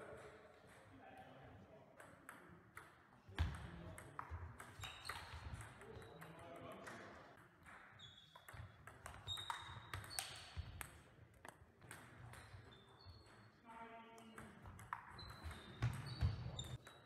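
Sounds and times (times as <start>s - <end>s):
table tennis ball hits: 2.0s - 12.6s, 14.4s - 16.1s.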